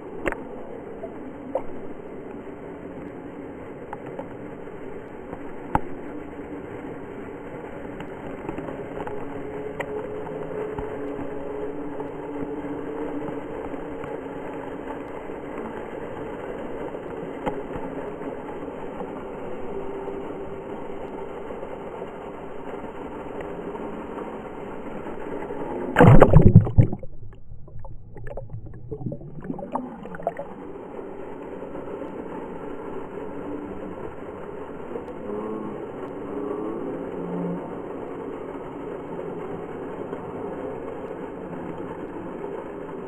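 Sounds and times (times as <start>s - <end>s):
loud splashing: 26.0s - 30.5s
water pouring into a pool: 26.0s - 30.6s.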